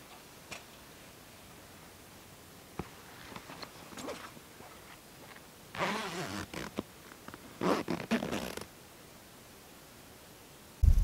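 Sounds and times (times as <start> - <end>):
soft rustling: 2.8 - 8.7
zipper being pulled: 5.8 - 6.8, 7.6 - 8.7.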